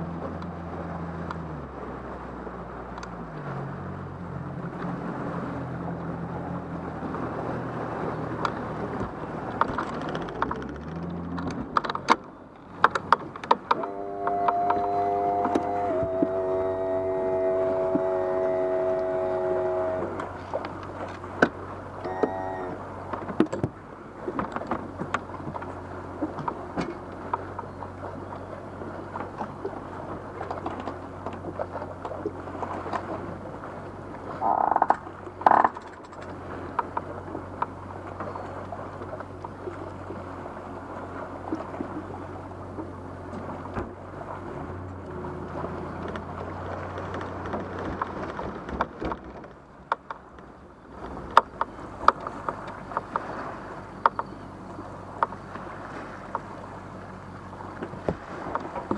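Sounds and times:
tow vehicle droning: 12.7 - 23.4.

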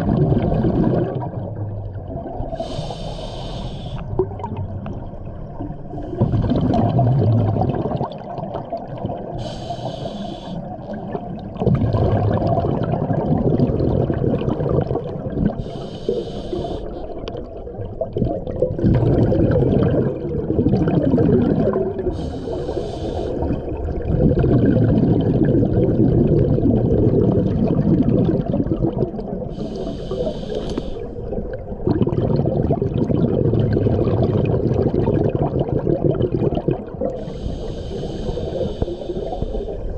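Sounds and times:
exhaled bubbles rushing: 0.0 - 2.6, 4.1 - 9.4, 10.7 - 15.6, 17.1 - 22.3, 23.3 - 30.2, 31.2 - 39.9
regulator inhale hiss: 2.5 - 4.1, 9.4 - 10.8, 15.6 - 17.2, 22.1 - 23.6, 29.5 - 31.3, 37.1 - 39.9.

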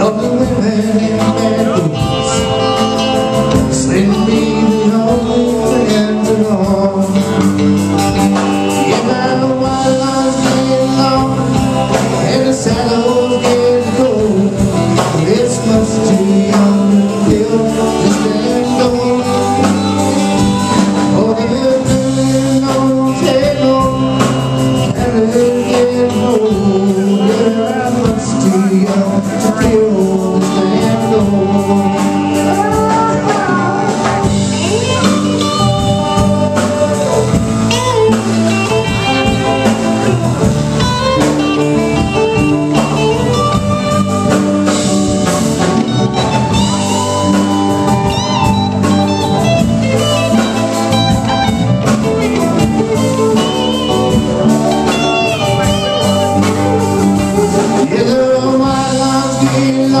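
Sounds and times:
live blues band playing: 0.0 - 60.0
man singing: 0.0 - 60.0.

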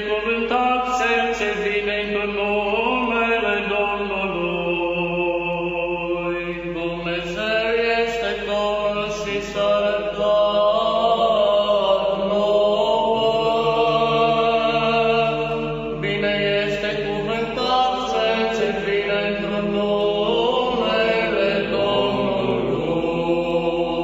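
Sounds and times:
low sustained vocal drone: 0.0 - 24.0
voices chanting slow melody: 8.2 - 24.0.

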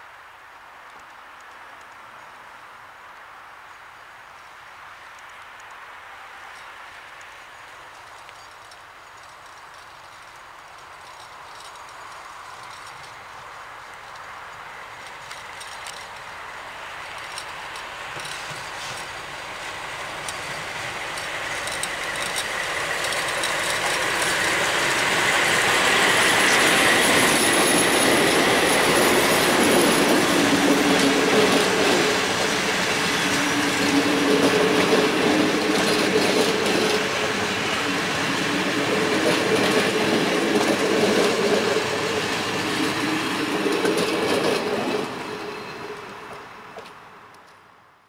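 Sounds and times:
train wheels clattering on rails: 7.9 - 47.6
diesel locomotive passing: 11.0 - 47.4.

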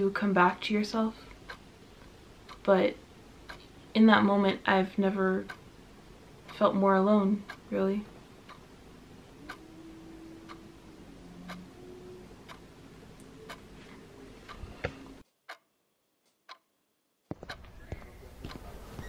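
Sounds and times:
faint room hum: 0.0 - 15.2
clock ticking: 0.2 - 16.7, 17.3 - 19.0.

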